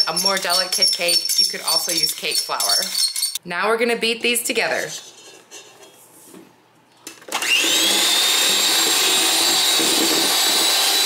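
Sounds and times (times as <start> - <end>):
electric hand mixer whine: 7.3 - 11.0.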